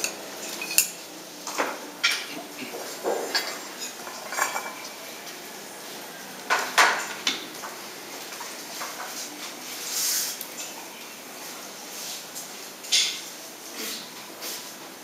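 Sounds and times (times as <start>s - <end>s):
brush clinking on ceramic dishes: 0.0s - 1.0s, 2.0s - 5.0s.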